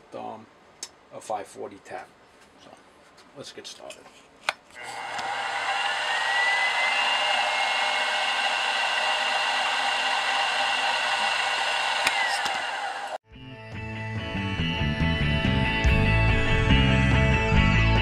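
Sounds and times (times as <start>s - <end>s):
drill cutting metal bar: 4.8s - 13.2s
milling machine motor whine: 4.8s - 13.2s.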